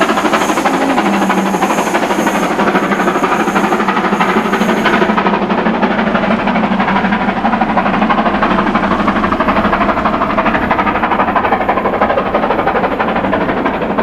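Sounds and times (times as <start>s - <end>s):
coaches rolling on rails: 0.0s - 14.0s
steam locomotive exhaust: 0.0s - 14.0s.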